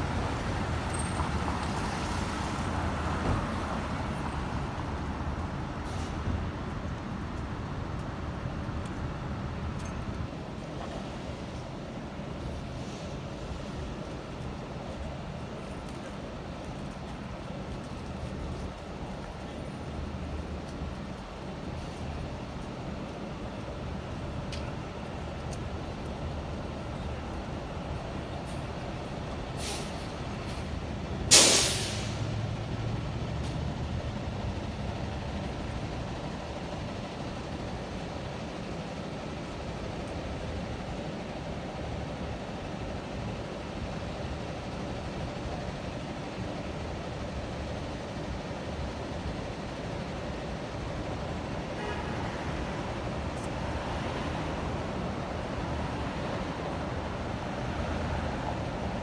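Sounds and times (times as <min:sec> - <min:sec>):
city traffic hum: 0:00.0 - 0:59.0
air brakes hissing: 0:05.8 - 0:06.3, 0:29.5 - 0:32.4.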